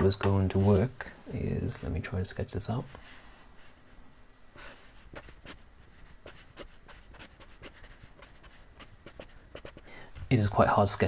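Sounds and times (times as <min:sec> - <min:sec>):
marker drawing on paper: 0:04.6 - 0:09.8.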